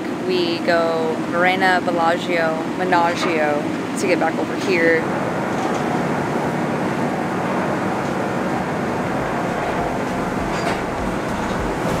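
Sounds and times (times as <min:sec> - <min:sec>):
coach diesel engine rumbling: 0:04.4 - 0:12.0.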